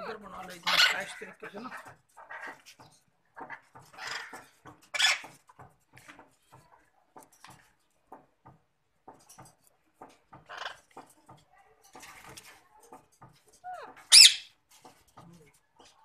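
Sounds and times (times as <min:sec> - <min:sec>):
parakeets squawking and chattering: 0:00.1 - 0:02.8, 0:03.4 - 0:05.5, 0:10.4 - 0:11.1, 0:13.6 - 0:14.6.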